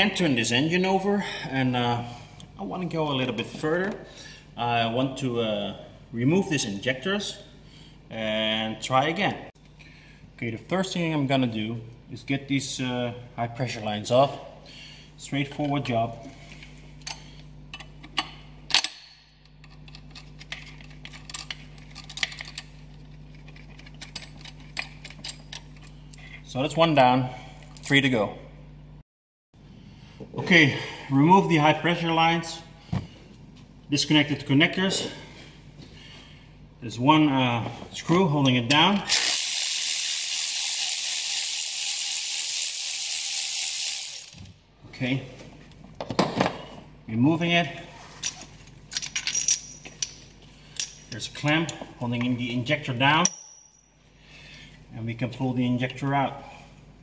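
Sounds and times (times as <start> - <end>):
power ratchet hissing: 39.1 - 44.5.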